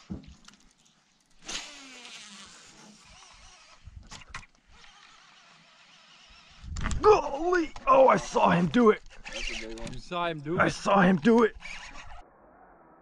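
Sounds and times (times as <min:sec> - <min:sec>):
fishing reel spool whirring: 0:01.4 - 0:10.0, 0:11.4 - 0:12.2.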